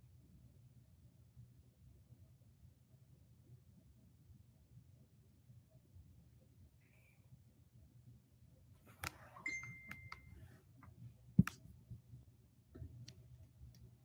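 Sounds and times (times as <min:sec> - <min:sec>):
thin high tone: 0:09.4 - 0:10.4
handling clicks and taps: 0:11.4 - 0:11.6.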